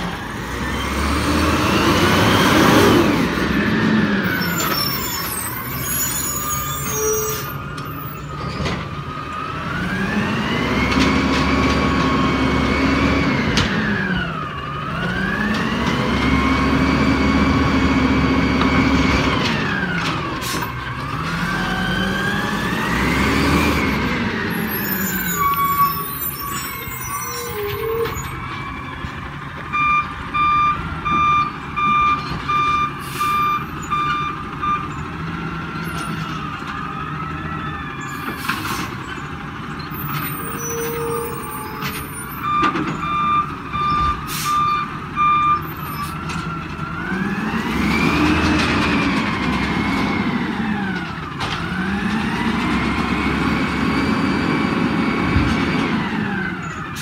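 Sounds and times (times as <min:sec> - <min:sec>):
truck engine whining and revving: 0:00.0 - 0:57.0
reversing alarm beeping: 0:29.7 - 0:35.0, 0:39.9 - 0:46.1.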